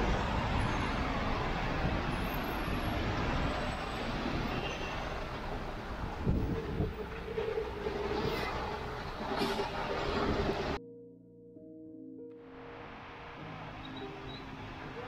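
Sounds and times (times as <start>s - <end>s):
traffic on wet road: 0.0s - 10.8s.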